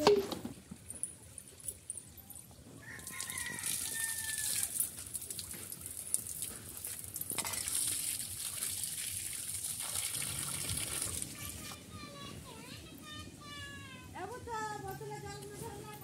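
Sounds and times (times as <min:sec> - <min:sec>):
water pouring from a pipe: 0:02.8 - 0:11.8
water splashing on concrete and steel: 0:02.8 - 0:11.8.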